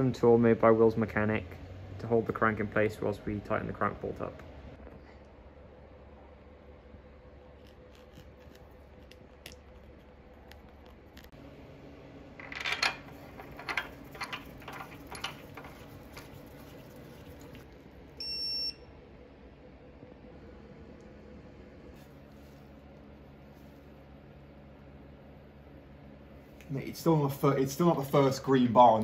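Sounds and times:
metallic clicks and clanks: 0:12.4 - 0:16.4
torque wrench electronic beep: 0:18.2 - 0:18.8.

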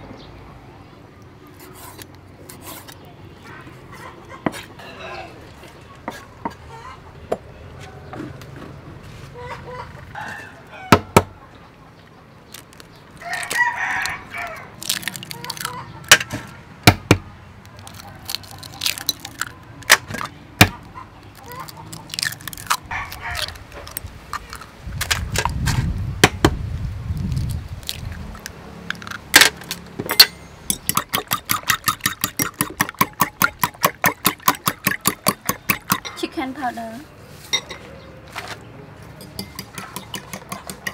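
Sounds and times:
eggs cracking on bowl rim: 0:14.8 - 0:16.2, 0:17.7 - 0:20.3, 0:21.2 - 0:24.7, 0:27.3 - 0:36.1
spoon clinking against bowl: 0:39.2 - 0:40.9.

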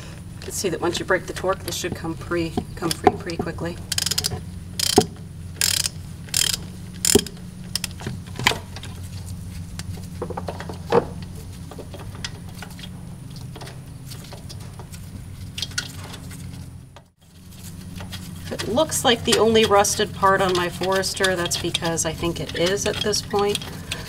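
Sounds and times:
low hum: 0:00.0 - 0:24.0
ratchet wrench clicking: 0:03.9 - 0:08.0, 0:19.3 - 0:24.0.

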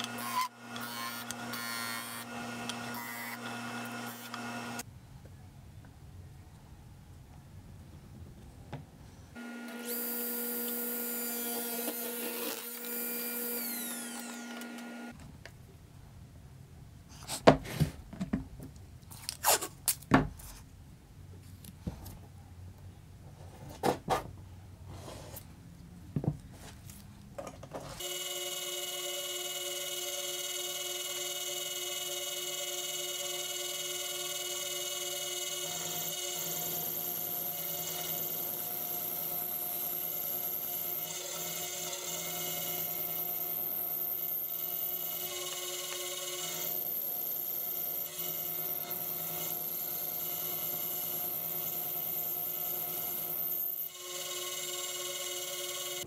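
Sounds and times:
power saw cutting wood: 0:00.0 - 0:04.8, 0:09.4 - 0:15.2, 0:28.0 - 0:56.0.

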